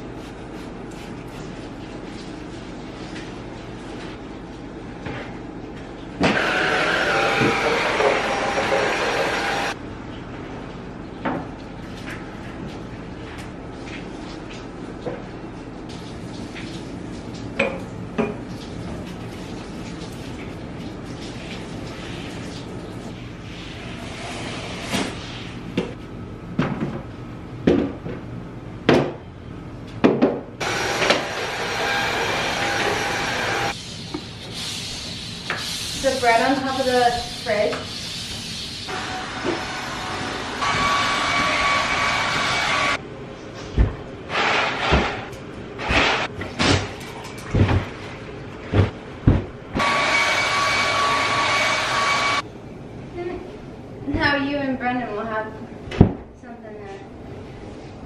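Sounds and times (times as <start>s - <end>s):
stick vacuum cleaner running: 6.2s - 9.8s, 30.6s - 33.7s, 38.9s - 43.0s, 49.8s - 52.4s
objects knocking on cabinet top: 48.7s - 49.6s.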